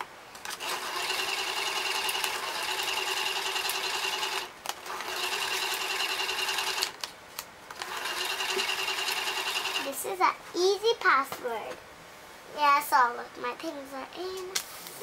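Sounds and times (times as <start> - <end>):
small motor whirring: 0.4 - 6.9, 7.8 - 9.9.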